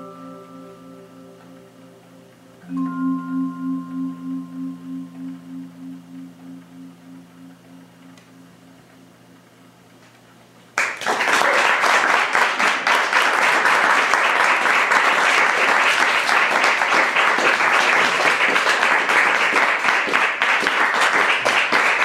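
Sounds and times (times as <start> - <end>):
vibraphone chord: 0.0 - 9.9
audience applause: 10.8 - 22.0.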